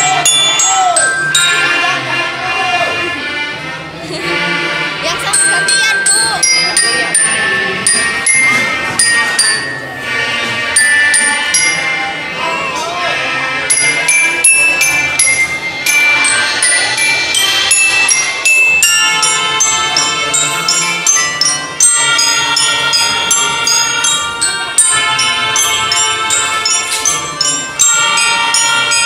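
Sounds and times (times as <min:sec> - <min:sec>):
marching bells melody: 0:00.0 - 0:29.0
melodicas holding notes: 0:00.0 - 0:29.0.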